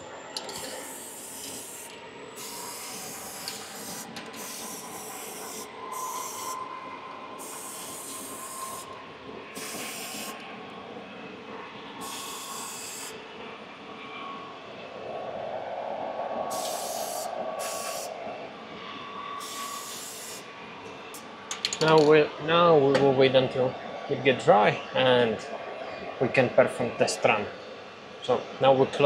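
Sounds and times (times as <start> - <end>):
aerosol can spraying: 9.6 - 10.4.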